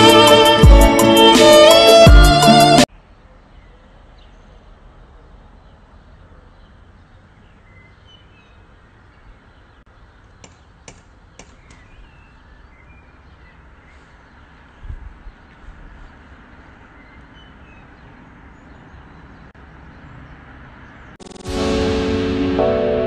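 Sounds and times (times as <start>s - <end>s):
birds chirping: 2.9s - 21.5s.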